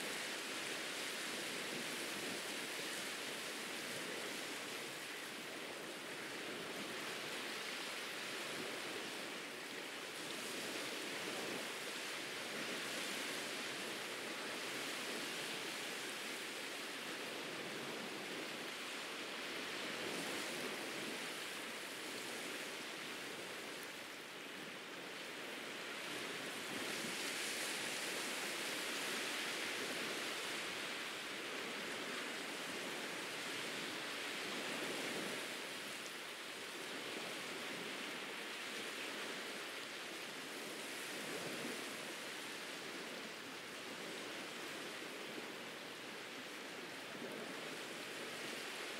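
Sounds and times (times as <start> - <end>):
ocean surf washing onto beach: 0.0 - 48.9.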